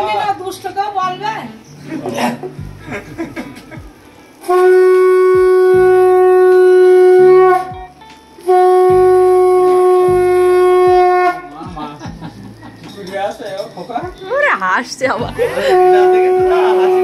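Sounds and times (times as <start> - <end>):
conch shell blasts: 4.4 - 11.5, 15.7 - 17.0.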